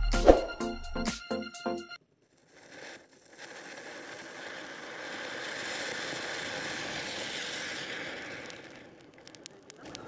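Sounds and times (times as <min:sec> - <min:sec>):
firework fuse hissing: 0:02.5 - 0:10.0
fountain firework spraying sparks: 0:02.5 - 0:10.0.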